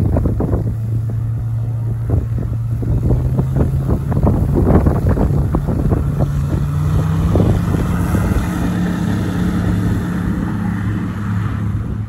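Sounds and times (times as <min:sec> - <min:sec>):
propeller engine droning: 0:00.0 - 0:12.0.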